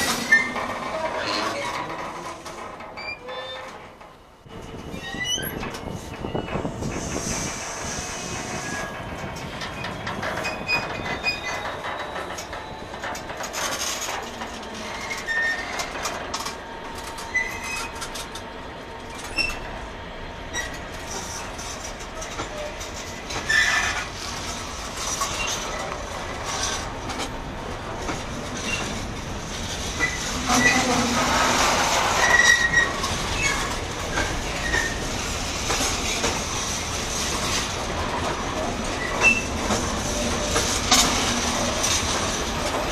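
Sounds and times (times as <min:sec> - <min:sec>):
wheel squeals: 0:00.0 - 0:03.7, 0:04.8 - 0:07.2, 0:09.6 - 0:16.0, 0:17.2 - 0:18.0, 0:19.2 - 0:19.6, 0:22.2 - 0:24.1, 0:28.5 - 0:29.0, 0:30.0 - 0:35.1, 0:38.9 - 0:42.8
wheels clanking over rail joints: 0:00.0 - 0:19.7, 0:20.5 - 0:42.9
train wheels rumbling on rail: 0:00.0 - 0:42.9.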